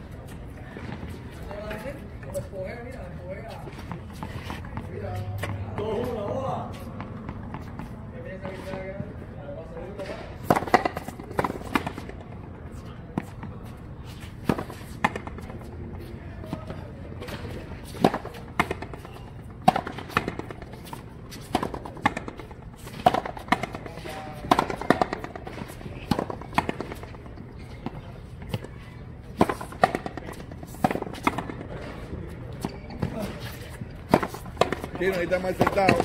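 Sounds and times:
ball struck with rackets: 0:10.0 - 0:12.4, 0:14.4 - 0:15.7, 0:16.5 - 0:36.0.

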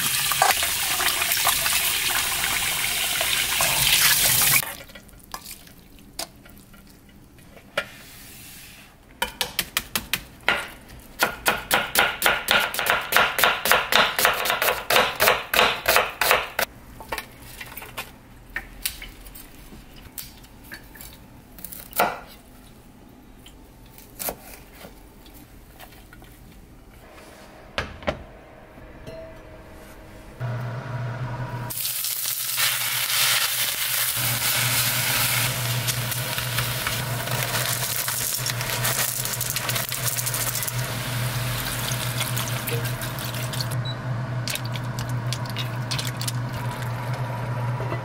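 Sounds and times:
knife chopping on cutting board: 0:11.2 - 0:16.6.

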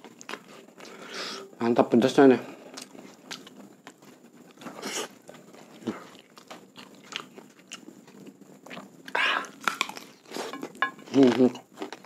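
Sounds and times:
person chewing food: 0:02.6 - 0:12.0.

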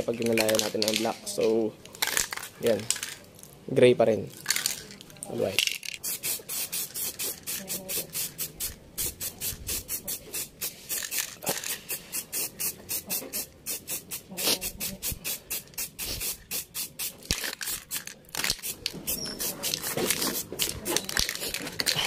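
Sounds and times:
aerosol can spraying in short bursts: 0:06.0 - 0:17.8, 0:18.5 - 0:20.8.

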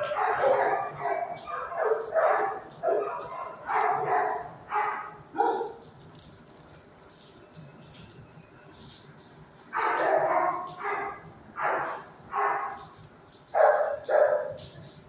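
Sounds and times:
dogs barking: 0:00.0 - 0:05.9, 0:09.7 - 0:15.0.

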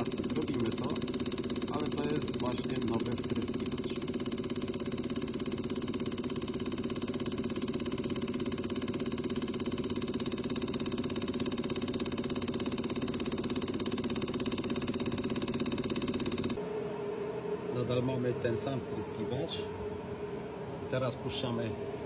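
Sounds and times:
rapid even injector ticking: 0:00.0 - 0:16.6
test bench mechanical hum: 0:00.0 - 0:22.0.

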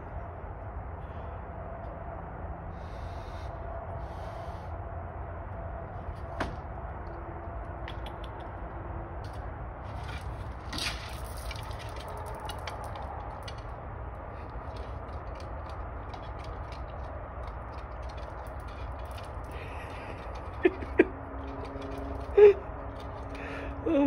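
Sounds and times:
steady low hum: 0:00.0 - 0:24.0
animal crunching dry food: 0:09.3 - 0:23.5.

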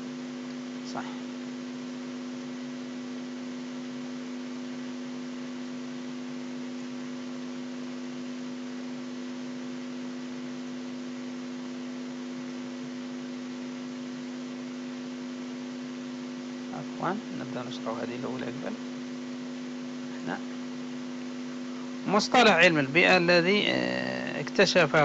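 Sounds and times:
constant hiss: 0:00.0 - 0:25.0
electrical hum: 0:00.0 - 0:25.0.

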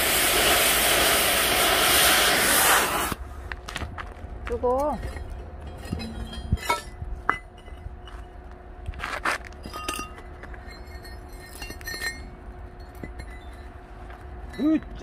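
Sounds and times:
steel plates clinking together: 0:04.8 - 0:07.8, 0:09.6 - 0:13.7.

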